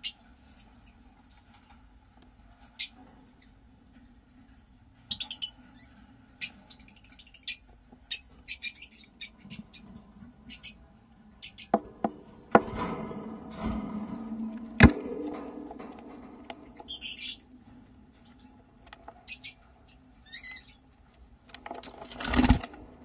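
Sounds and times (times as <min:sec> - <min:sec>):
parrots chirping: 0:05.1 - 0:05.6, 0:06.4 - 0:09.9, 0:10.5 - 0:10.8, 0:11.4 - 0:11.8, 0:19.2 - 0:19.6, 0:20.2 - 0:20.8
knocks: 0:11.7 - 0:17.3.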